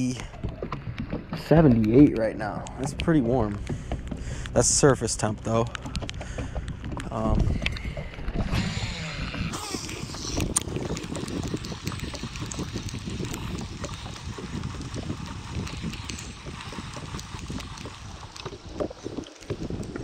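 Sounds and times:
wind and water rumble: 0:00.0 - 0:20.0
small clicks and knocks: 0:00.2 - 0:08.4
reel handle cranking: 0:01.1 - 0:20.0
fishing line paying off reel: 0:07.8 - 0:19.4.

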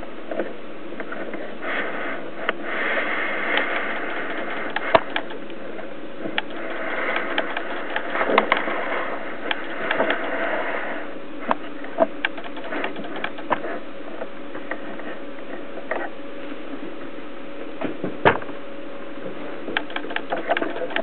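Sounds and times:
steady hum: 0:00.0 - 0:21.0
camera autofocus motor clicking: 0:03.5 - 0:05.5, 0:06.4 - 0:08.6, 0:09.5 - 0:10.4, 0:12.2 - 0:13.6, 0:19.8 - 0:21.0.

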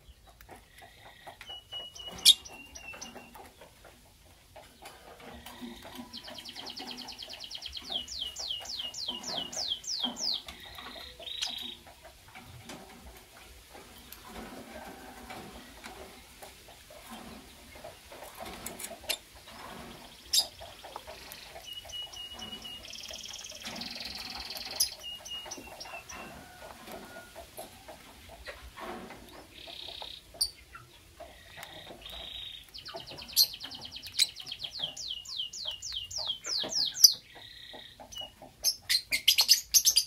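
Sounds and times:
lovebirds chirping shrilly: 0:01.5 - 0:03.4.

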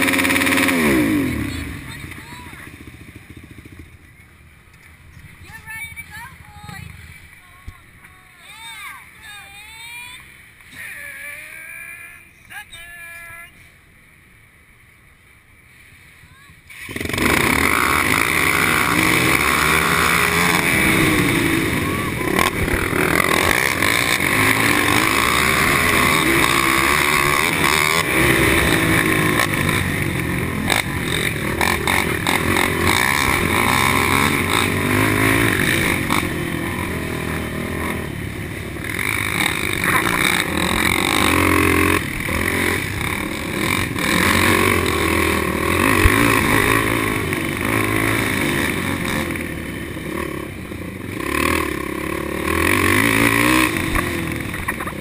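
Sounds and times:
quad engine revving: 0:00.0 - 0:03.9, 0:16.7 - 0:55.0.

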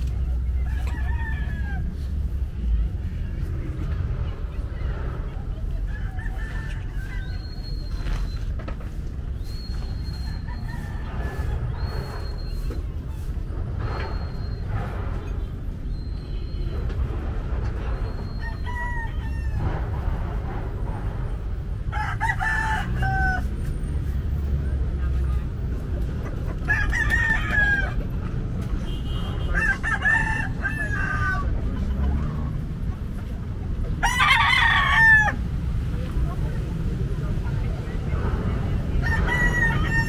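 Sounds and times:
steady low rumble: 0:09.0 - 0:22.3
rooster crowing: 0:39.0 - 0:40.0.

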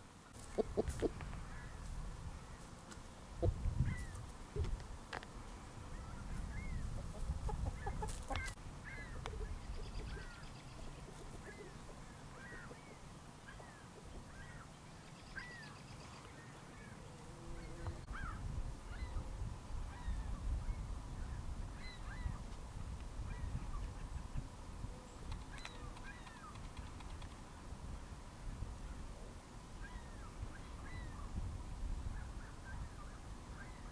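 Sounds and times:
chickens chirping: 0:00.4 - 0:01.2, 0:05.9 - 0:14.4.

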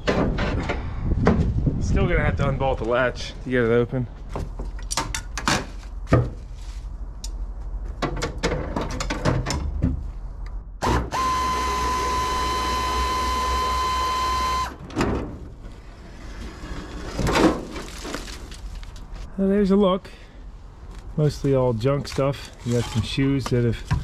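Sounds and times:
clicks and metal knocks: 0:07.2 - 0:10.0
power drill-driver running: 0:10.8 - 0:14.8.

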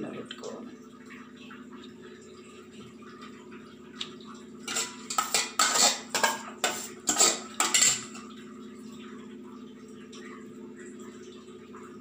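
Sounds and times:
low steady hum: 0:00.0 - 0:12.0
dishes and utensils clattering: 0:04.6 - 0:08.4.

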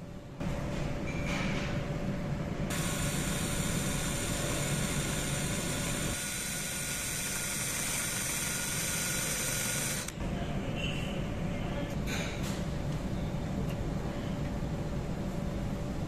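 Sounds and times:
drill bit cutting metal: 0:02.7 - 0:10.1
electric drill motor whine: 0:02.7 - 0:10.2.

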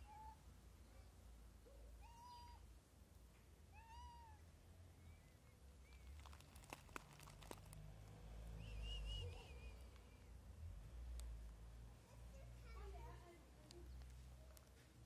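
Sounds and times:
cat meowing: 0:00.0 - 0:00.4, 0:02.0 - 0:02.6, 0:03.7 - 0:04.4.

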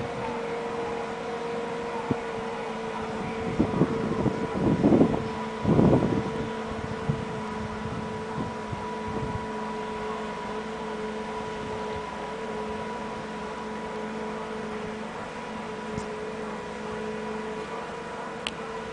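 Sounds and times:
diesel engine humming: 0:00.0 - 0:18.9
wind buffeting microphone: 0:01.6 - 0:10.2, 0:11.2 - 0:12.3.

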